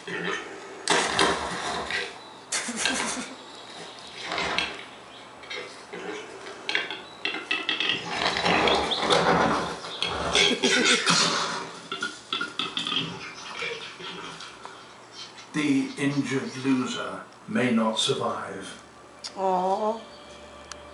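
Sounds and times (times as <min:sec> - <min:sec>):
birds fighting clatter: 0:00.8 - 0:16.8.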